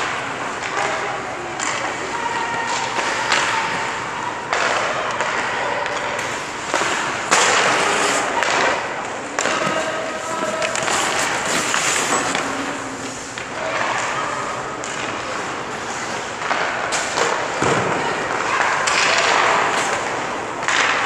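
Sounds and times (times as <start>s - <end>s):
skate blades scraping ice: 6.2s - 8.8s, 9.5s - 14.2s.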